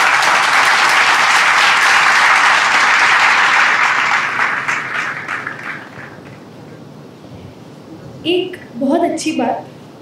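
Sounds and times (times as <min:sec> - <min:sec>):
audience applause: 0:00.0 - 0:06.4.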